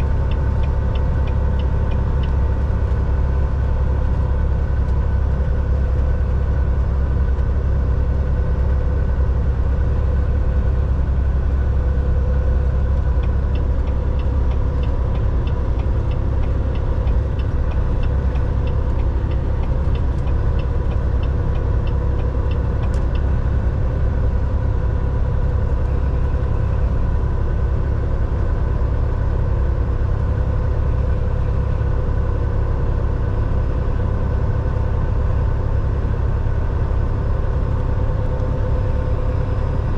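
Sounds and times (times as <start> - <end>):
truck diesel engine droning: 0.0 - 39.9
light regular ticking: 0.1 - 5.0, 12.2 - 23.6.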